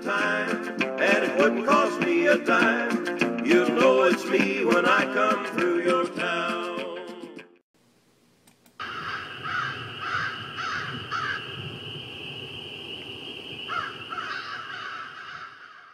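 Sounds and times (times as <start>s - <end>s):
steady background hiss: 7.8s - 15.2s
crows cawing: 8.8s - 11.6s, 13.7s - 15.9s.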